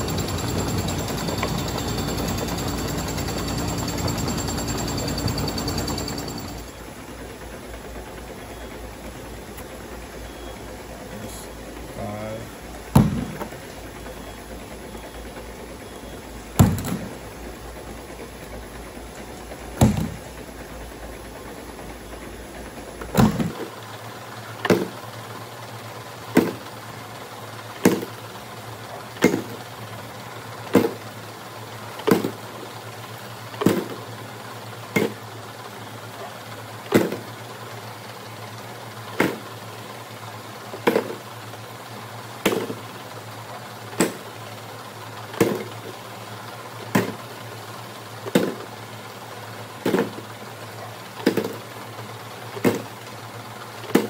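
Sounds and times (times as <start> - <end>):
machine clatter: 0.0 - 10.0
counting machine humming: 0.0 - 24.1.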